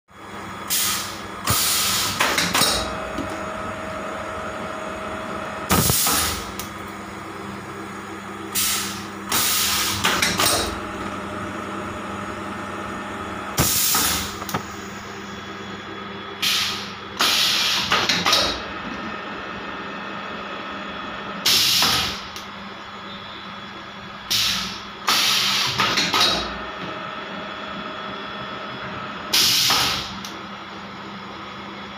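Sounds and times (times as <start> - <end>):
machine motor hum: 0.2 - 25.1.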